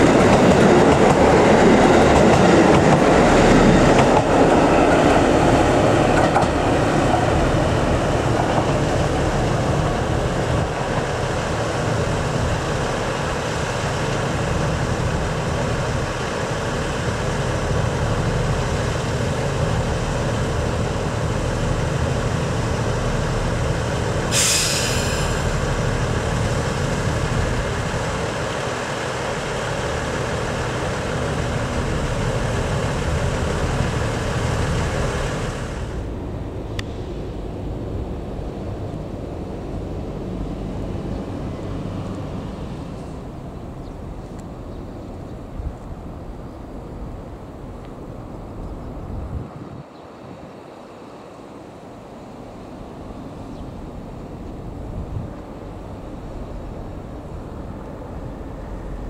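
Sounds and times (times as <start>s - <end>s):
diesel train rumbling past: 0.0s - 59.0s
brief hiss: 24.3s - 25.6s.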